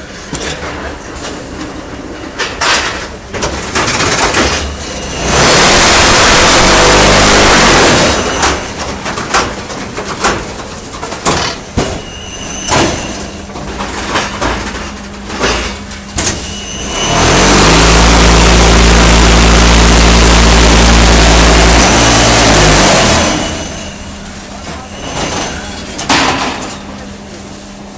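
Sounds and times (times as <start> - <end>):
machine compaction vibration: 3.6 - 10.6, 12.9 - 26.4
metal clanks and knocks: 8.2 - 16.8, 23.5 - 27.0.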